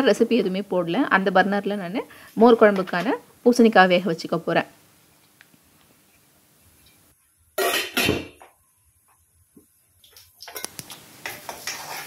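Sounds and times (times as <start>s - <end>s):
seeds sizzling in hot oil: 10.1s - 12.0s
metal spatula scraping a pan: 11.2s - 12.0s.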